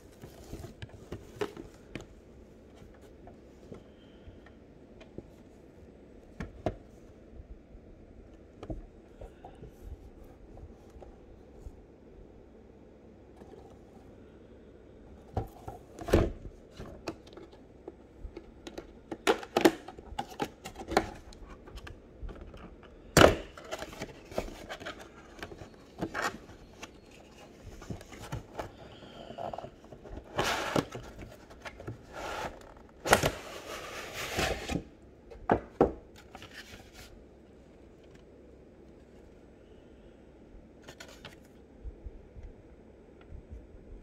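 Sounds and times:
rustling and scraping: 0.0 - 4.1, 20.1 - 34.9, 36.1 - 38.2.

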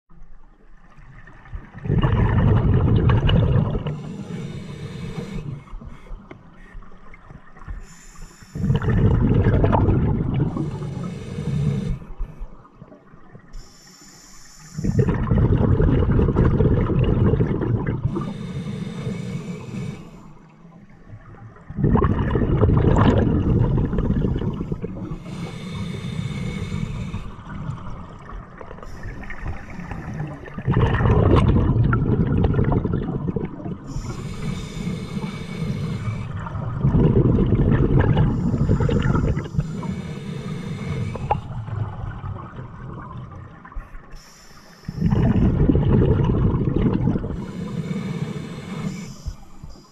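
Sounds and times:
exhaled bubbles rumbling underwater: 0.1 - 7.9, 8.6 - 13.7, 14.7 - 49.9
regulator hiss: 4.0 - 5.7, 7.8 - 8.7, 10.6 - 12.2, 13.6 - 15.0, 18.1 - 20.3, 25.2 - 27.4, 33.9 - 36.4, 38.3 - 41.6, 43.9 - 45.5, 47.4 - 49.9.

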